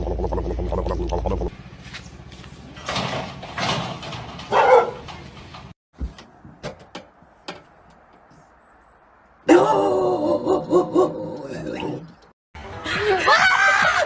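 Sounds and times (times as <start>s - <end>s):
dog barking: 4.5s - 5.0s.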